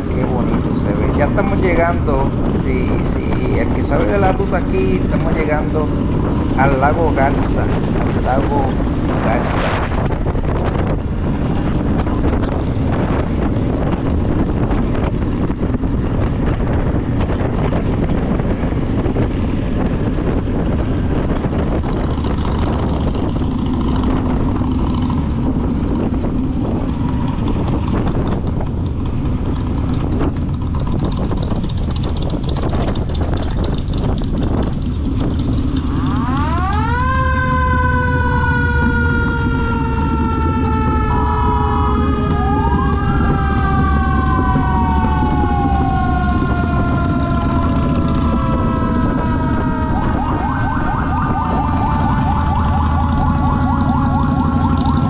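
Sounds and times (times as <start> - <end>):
motorcycle engine: 0.0 - 55.0
wind noise: 0.0 - 55.0
loud pitched wail: 35.8 - 55.0.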